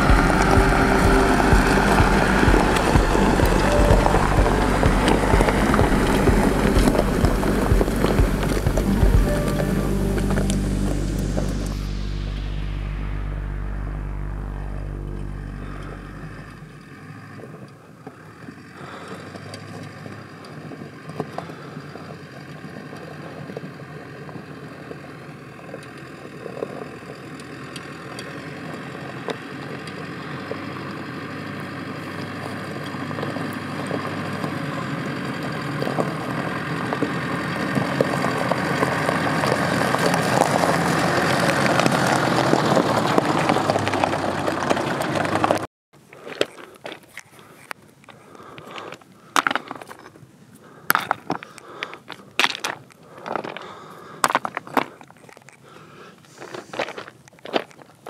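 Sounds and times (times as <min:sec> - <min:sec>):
low steady hum: 0:00.0 - 0:17.5
car engine noise: 0:00.0 - 0:45.7
tyres on stones: 0:36.9 - 0:58.0.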